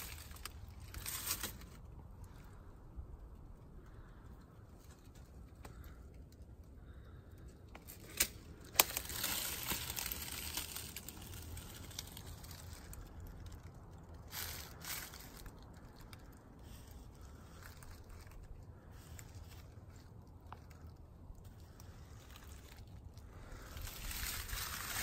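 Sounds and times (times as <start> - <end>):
close rustling and crinkling: 0.0 - 25.0.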